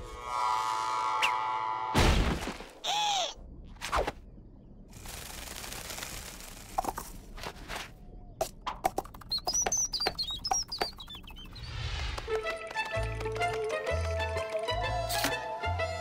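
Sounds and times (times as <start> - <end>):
loud cartoon impact: 2.0 - 2.6
high chirps: 9.2 - 11.9.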